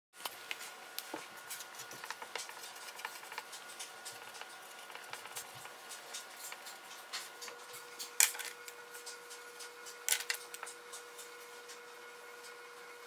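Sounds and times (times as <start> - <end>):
marker scratching on paper: 1.6 - 6.6.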